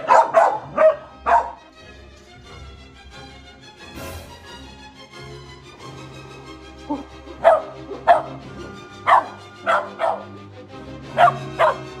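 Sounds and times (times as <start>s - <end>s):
dog barking: 0.0s - 1.6s, 6.9s - 8.4s, 9.1s - 10.4s, 11.1s - 12.0s
background music: 0.0s - 12.0s.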